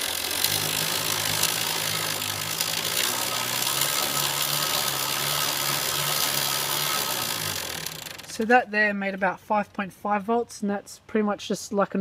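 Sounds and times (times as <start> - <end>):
bicycle chain whirring: 0.0 - 8.5
low motor hum: 0.0 - 8.5.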